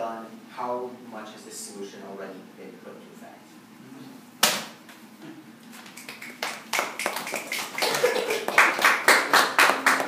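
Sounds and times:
audience clapping: 5.9s - 10.0s.

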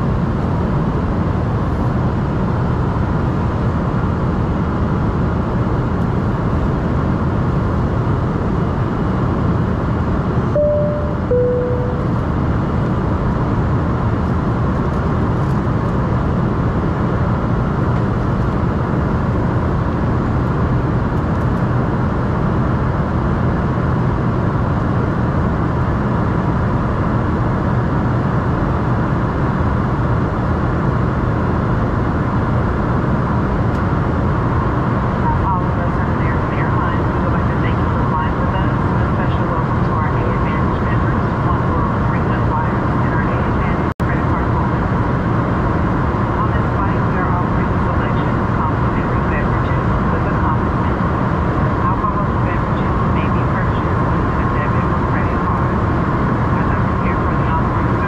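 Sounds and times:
jet cabin engine hum: 0.0s - 58.0s
two-tone cabin chime: 10.6s - 12.2s.

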